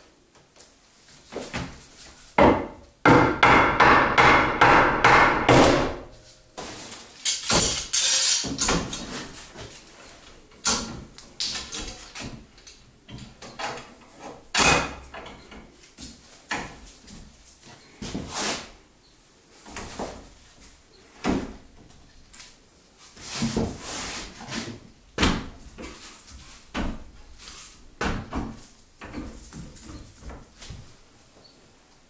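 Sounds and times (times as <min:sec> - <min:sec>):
sharp knocks on wood: 0:02.4 - 0:06.0
bar clamp rattling and clacking: 0:07.2 - 0:09.1.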